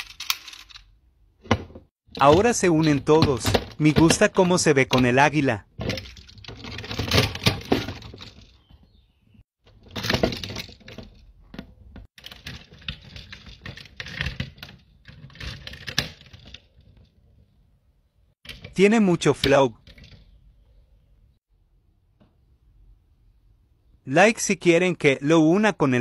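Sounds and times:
plastic toy parts clicking: 0.0 - 0.9.

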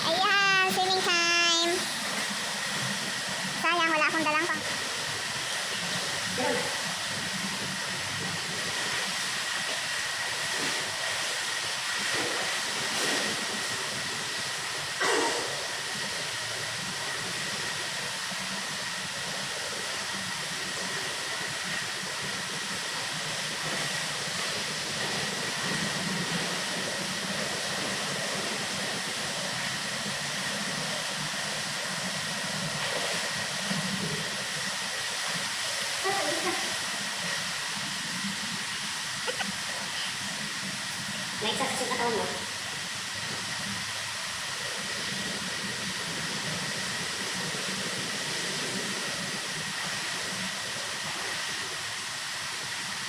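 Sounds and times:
swimmer splashing: 0.0 - 30.6
faint steady whine: 0.0 - 53.0
water pouring into pool: 1.6 - 53.0.

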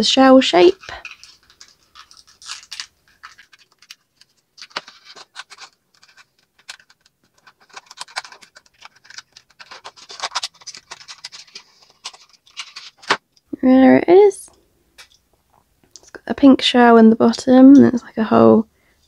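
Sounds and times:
cardboard scratching and rustling: 0.6 - 13.2.

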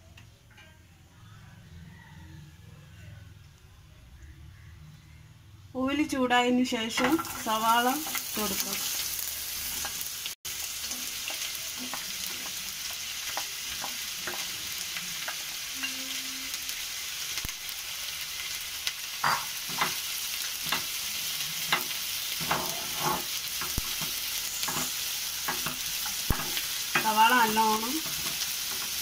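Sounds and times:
onions sizzling in oil: 6.7 - 29.0
spatula scraping pan: 19.2 - 29.0.

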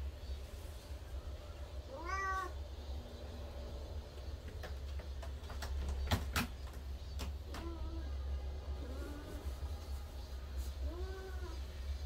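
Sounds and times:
cat paws tapping and clicking: 4.1 - 7.8.

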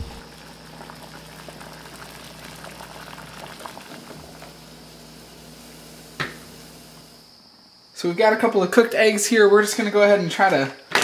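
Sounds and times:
water boiling in a saucepan: 0.0 - 7.3.

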